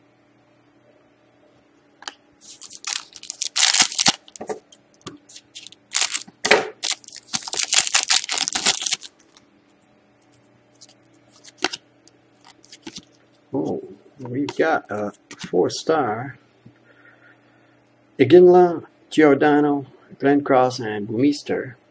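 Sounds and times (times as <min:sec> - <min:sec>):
foil wrapper tearing and crinkling: 0:02.4 - 0:04.4, 0:05.3 - 0:09.4, 0:10.8 - 0:11.8, 0:12.4 - 0:13.1.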